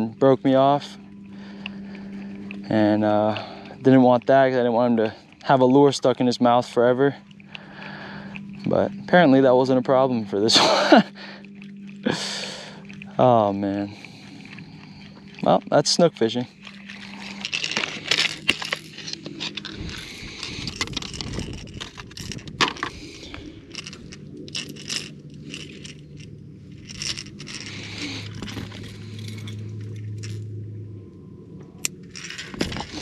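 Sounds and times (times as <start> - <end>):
low steady hum: 0.0 - 33.0
metal hooks clinking: 16.6 - 30.5, 31.8 - 33.0.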